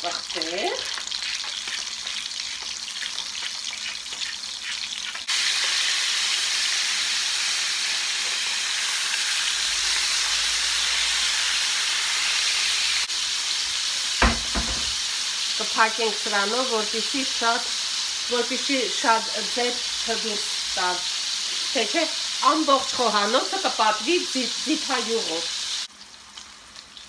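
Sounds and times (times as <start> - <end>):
fish sizzling in hot oil: 0.0 - 27.0
short knock: 14.2 - 15.0.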